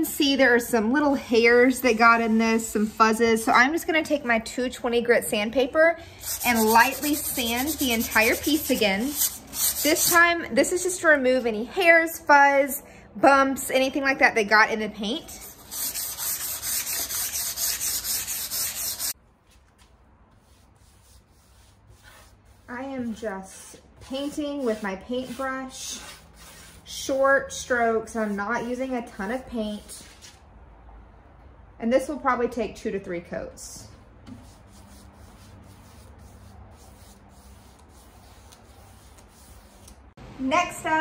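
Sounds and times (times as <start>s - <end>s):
hand sanding strokes: 6.2s - 10.2s, 15.3s - 19.2s, 20.3s - 30.4s, 34.3s - 40.0s
paintbrush brushing a surface: 6.2s - 10.2s, 15.4s - 19.2s, 20.3s - 27.2s, 34.3s - 39.9s.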